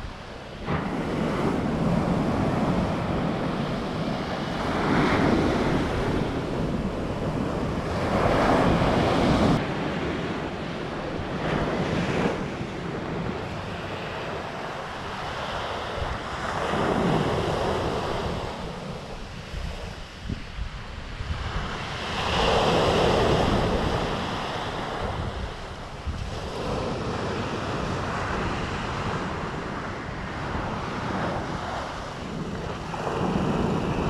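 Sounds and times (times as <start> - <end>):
surf breaking on beach: 0.0 - 34.0
wind buffeting microphone: 0.0 - 34.0.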